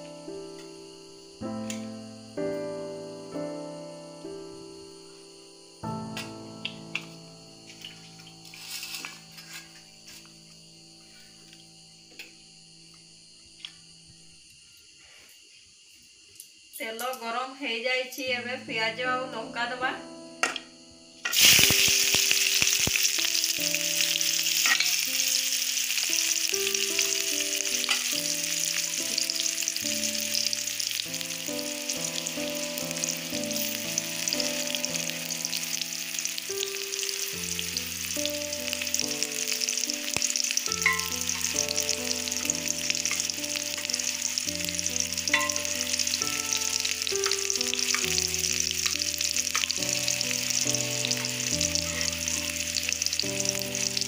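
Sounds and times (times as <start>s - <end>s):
onions frying in hot oil: 7.7s - 10.3s, 21.2s - 54.0s.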